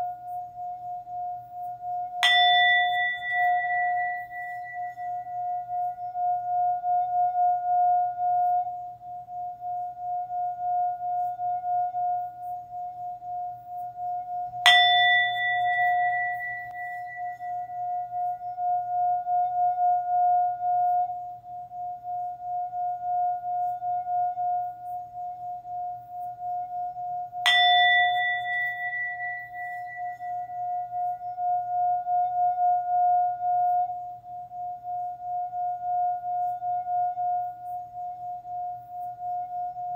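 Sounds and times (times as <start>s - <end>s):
singing bowl ringing hum: 0.0s - 39.9s
singing bowl struck: 2.1s - 12.6s, 14.0s - 21.9s, 26.8s - 34.0s.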